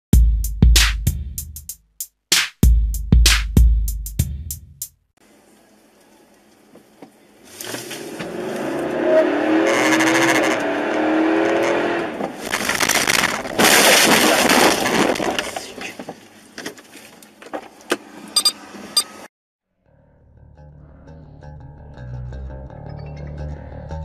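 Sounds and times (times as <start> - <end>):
car engine and tyre noise: 6.6 - 19.3
car crash and scrape: 7.5 - 10.0, 12.0 - 16.0
tyres squealing: 8.2 - 16.0.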